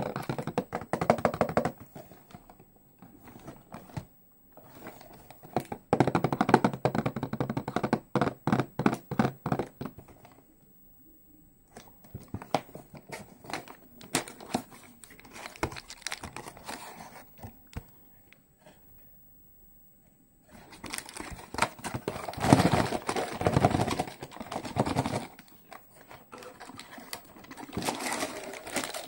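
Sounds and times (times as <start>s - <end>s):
cardboard and wrapper rustling: 12.1s - 17.9s, 20.5s - 29.0s
plastic wrap crinkling and tearing: 15.0s - 16.8s, 20.7s - 25.5s, 26.3s - 29.0s.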